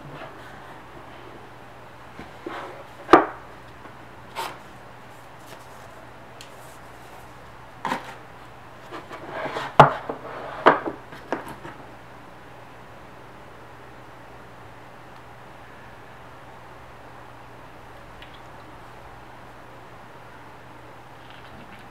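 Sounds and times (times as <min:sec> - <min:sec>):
scraping and rustling: 0:04.3 - 0:11.8.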